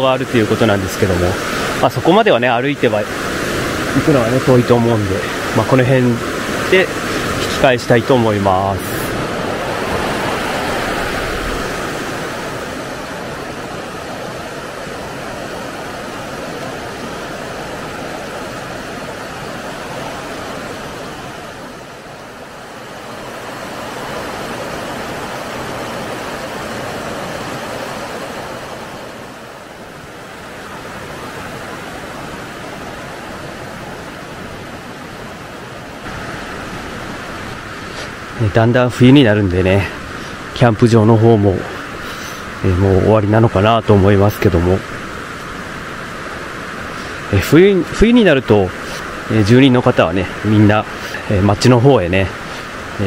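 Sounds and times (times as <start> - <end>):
mountain stream rushing over rocks: 0.0 - 53.0.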